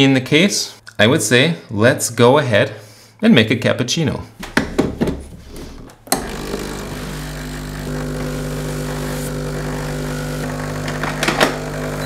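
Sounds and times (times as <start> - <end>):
espresso machine pump buzzing: 6.1 - 12.0.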